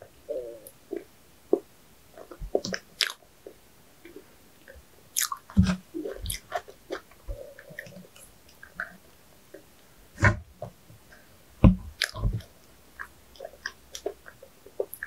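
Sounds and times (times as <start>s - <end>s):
mouth clicks and smacks: 0.6s - 9.8s, 11.1s - 15.0s
person biting and chewing food: 2.2s - 3.2s, 5.2s - 7.1s.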